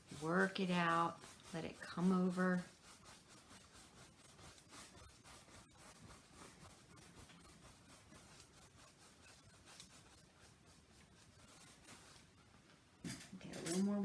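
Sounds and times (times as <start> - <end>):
paintbrush swishing on canvas: 0.0 - 12.7.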